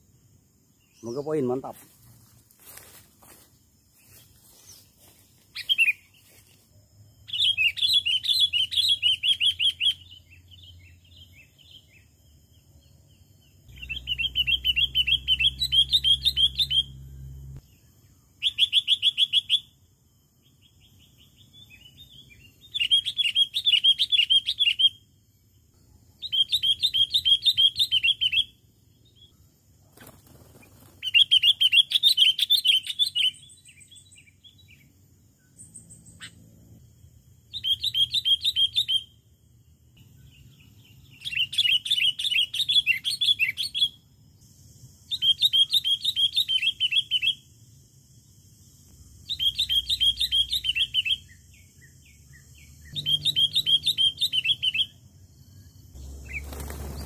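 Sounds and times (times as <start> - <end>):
bulbul chattering calls: 52.9 - 54.9.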